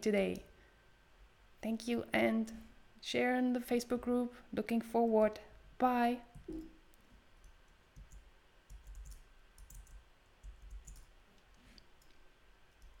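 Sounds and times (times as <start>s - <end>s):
computer mouse clicking: 7.4s - 13.0s.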